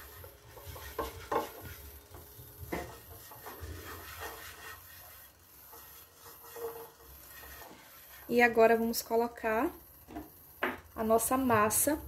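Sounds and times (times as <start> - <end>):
brush knocking against pan: 0.0 - 4.8
pastry brush rubbing pan: 0.0 - 9.2.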